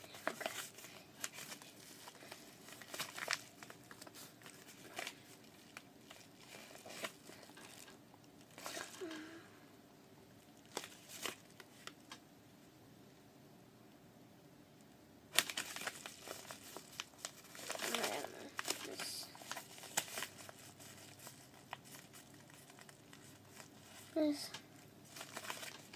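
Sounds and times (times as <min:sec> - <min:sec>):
paper mailer envelope crinkling: 0:00.0 - 0:09.1, 0:15.3 - 0:24.2, 0:25.0 - 0:25.9.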